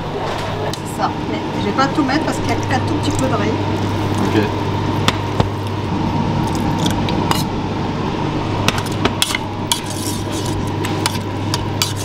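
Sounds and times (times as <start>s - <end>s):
steady low hum: 0.0s - 12.0s
metal spoon scraping saucepan: 9.7s - 12.0s.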